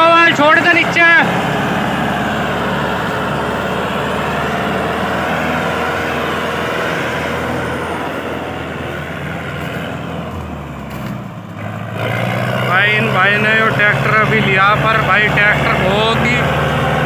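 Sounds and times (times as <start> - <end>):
person speaking: 0.0 - 1.5, 12.7 - 16.6
diesel tractor engine running: 0.0 - 17.0.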